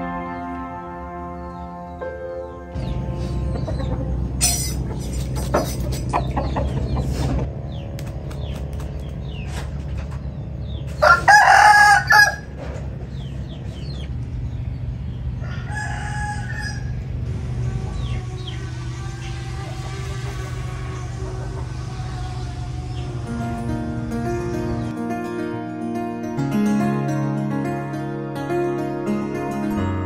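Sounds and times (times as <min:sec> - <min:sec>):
small birds chirping: 0:01.9 - 0:11.1, 0:12.6 - 0:15.6, 0:17.8 - 0:25.0
steady low hum: 0:02.7 - 0:28.9
rooster crowing: 0:11.0 - 0:12.6, 0:15.4 - 0:23.4.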